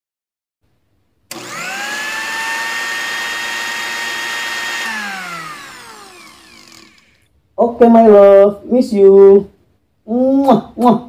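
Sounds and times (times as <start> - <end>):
blender motor whining: 1.3 - 7.3.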